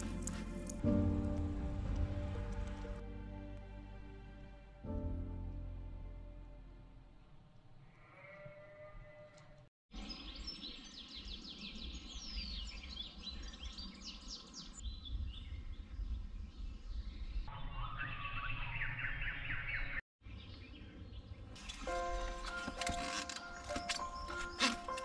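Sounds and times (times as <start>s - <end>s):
songbirds chirping and whistling: 10.0s - 25.0s.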